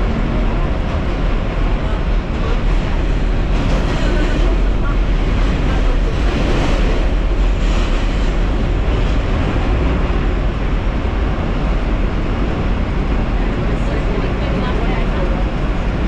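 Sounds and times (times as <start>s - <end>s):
subway car rumbling on track: 0.0s - 16.0s.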